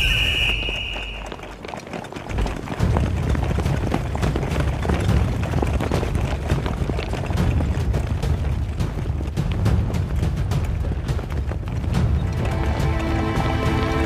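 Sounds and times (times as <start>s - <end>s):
crowd running on pavement: 0.0s - 14.0s
steady low rumble: 2.3s - 14.0s.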